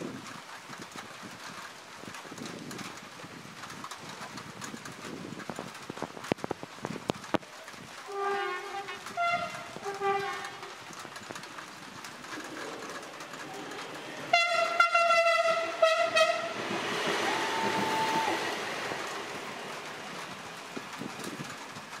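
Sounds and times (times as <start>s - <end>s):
train running past: 8.0s - 22.0s
train horn blast: 8.1s - 10.8s, 14.3s - 18.6s.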